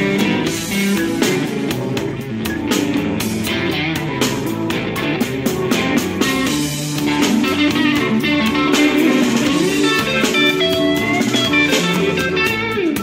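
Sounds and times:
blues-rock electric guitar music: 0:00.0 - 0:13.0.

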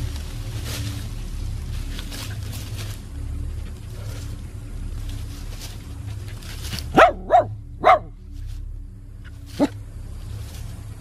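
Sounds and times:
small dog barking: 0:06.9 - 0:08.1.

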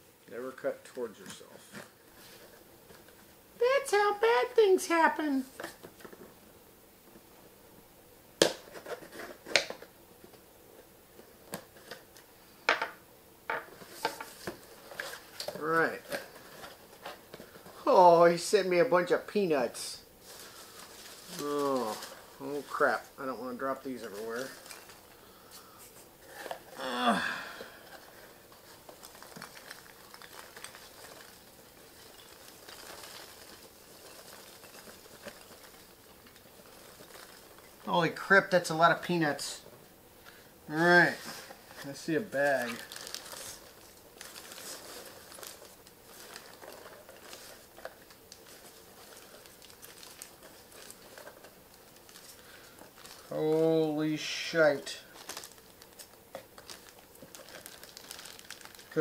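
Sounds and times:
packing peanuts rustling: 0:13.7 - 0:59.0
short falling vocal sound: 0:26.8 - 0:27.5
cardboard and tape cracking: 0:27.6 - 0:37.9, 0:41.2 - 0:53.6, 0:54.7 - 0:59.0.

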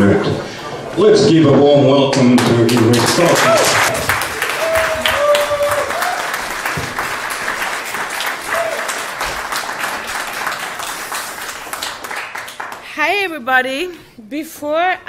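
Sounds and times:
audience applause: 0:02.2 - 0:12.9.

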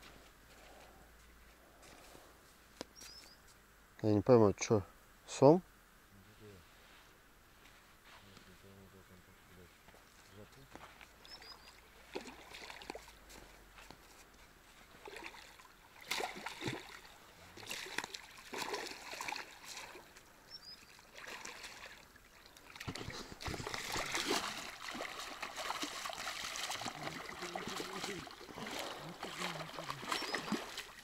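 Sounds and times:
river water splashing and sloshing: 0:09.7 - 0:31.0.

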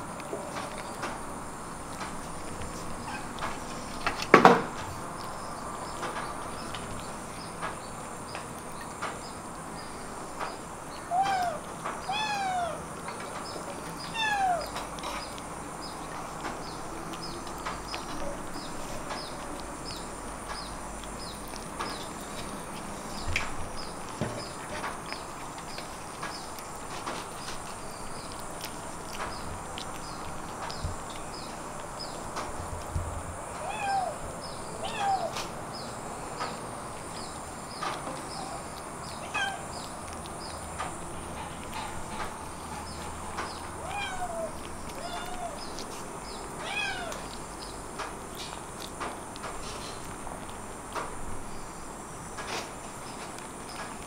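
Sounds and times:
kitten meowing: 0:11.0 - 0:12.8, 0:14.1 - 0:14.8, 0:33.6 - 0:34.2, 0:34.8 - 0:35.4, 0:39.2 - 0:39.8, 0:43.8 - 0:45.7, 0:46.6 - 0:47.3.

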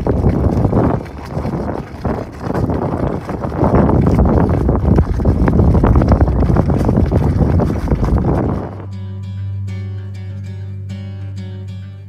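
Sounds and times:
hot water splashing and gurgling: 0:00.0 - 0:08.9.

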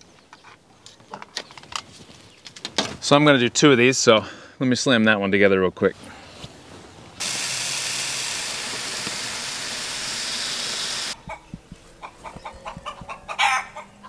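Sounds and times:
chickens clucking: 0:11.1 - 0:14.0.

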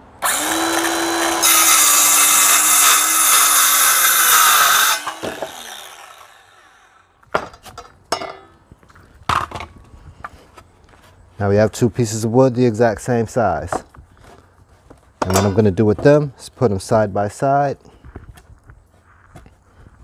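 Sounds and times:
circular saw cutting wood: 0:00.2 - 0:07.1.

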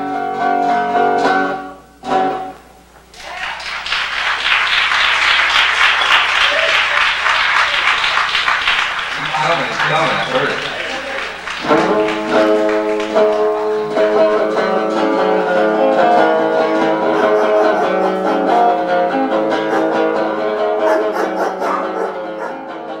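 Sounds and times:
acoustic guitar strumming chords: 0:00.0 - 0:02.9, 0:09.2 - 0:23.0.

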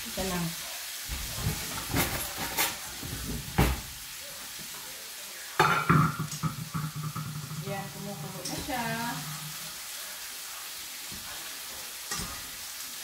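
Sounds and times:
meat sizzling in a pan: 0:00.0 - 0:13.0
cookware knocking: 0:05.6 - 0:09.6
metal pot lid clattering: 0:05.6 - 0:09.6.

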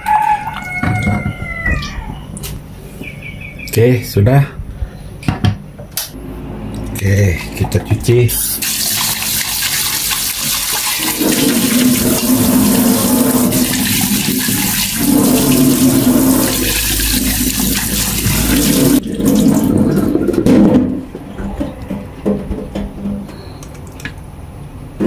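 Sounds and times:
tap water splashing into sink: 0:08.6 - 0:19.7.

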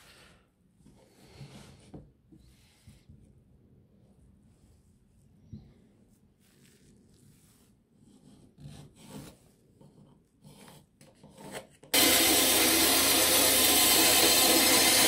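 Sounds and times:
bandsaw cutting wood: 0:11.9 - 0:15.0.

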